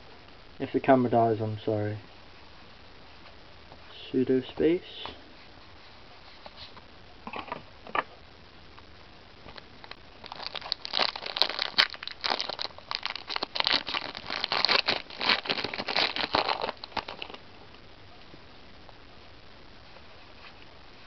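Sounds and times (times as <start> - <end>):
foil wrapper tearing and crinkling: 9.8 - 17.4.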